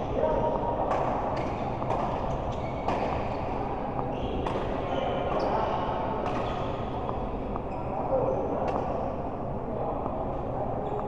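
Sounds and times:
racket hitting shuttlecock: 0.8 - 3.6, 4.4 - 5.5, 6.2 - 7.6
shoe squeak: 1.4 - 3.5, 4.1 - 6.9, 7.6 - 8.7.

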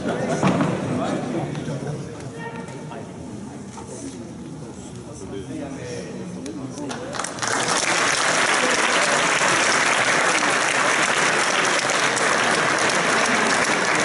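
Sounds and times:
audience applauding: 7.1 - 14.0.

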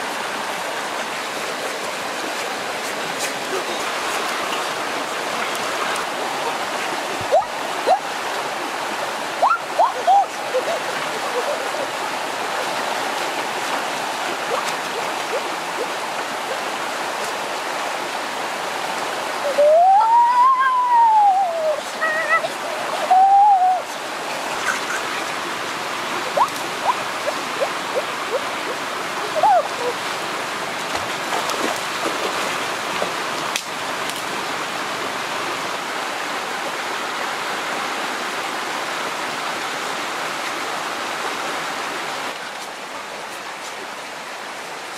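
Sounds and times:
stream rushing over rocks: 0.0 - 44.9
short pitched calls: 26.2 - 28.8.

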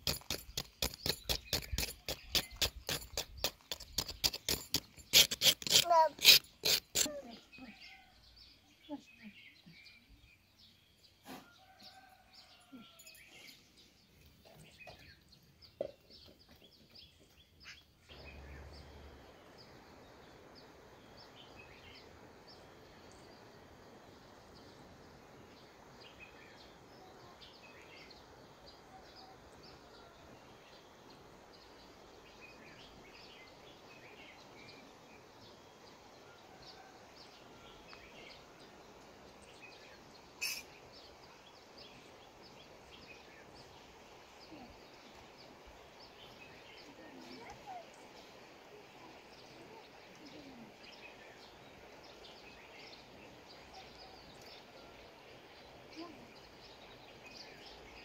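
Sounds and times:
small bird chirps: 0.1 - 8.1, 39.5 - 42.1
steady background hiss: 17.7 - 58.0.

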